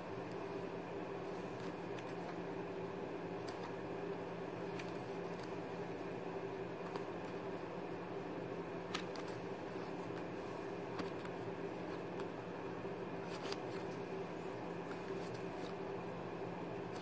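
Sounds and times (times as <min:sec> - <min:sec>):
steady low hum: 0:00.0 - 0:17.0
playing cards clicking and snapping: 0:01.5 - 0:02.4, 0:03.4 - 0:03.8, 0:04.6 - 0:05.7, 0:06.8 - 0:07.5, 0:08.8 - 0:10.3, 0:10.9 - 0:12.4, 0:13.2 - 0:14.0.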